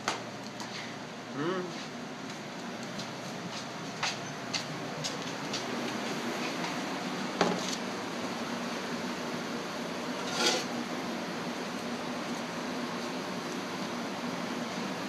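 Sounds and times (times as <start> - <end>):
steady mechanical hum: 0.0 - 15.0
scraping rustle: 10.2 - 10.7.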